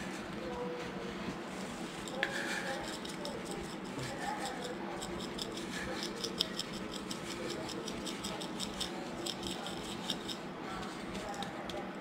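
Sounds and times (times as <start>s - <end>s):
spice shaker rattling: 1.9s - 10.4s.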